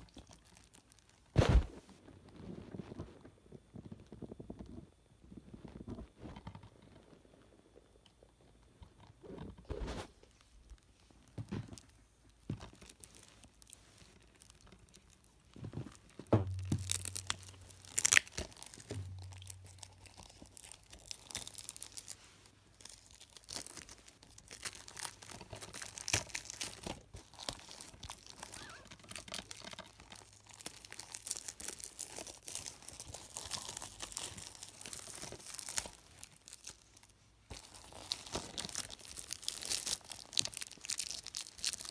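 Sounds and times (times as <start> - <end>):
plastic wrap tearing and crinkling: 0.0 - 3.0, 9.8 - 41.9
handling knocks: 15.6 - 17.8.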